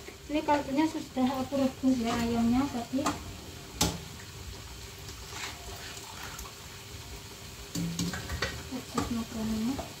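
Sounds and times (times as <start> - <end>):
soup cooking hiss: 0.0 - 10.0.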